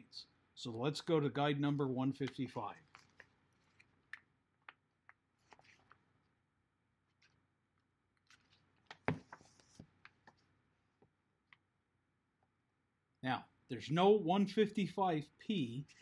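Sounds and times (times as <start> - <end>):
book pages flipping: 2.3 - 6.1, 7.1 - 7.4, 8.1 - 10.5.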